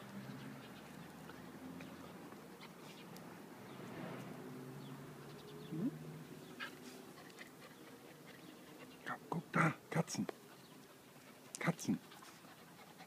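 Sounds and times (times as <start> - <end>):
faint animal sounds: 5.2 - 13.0.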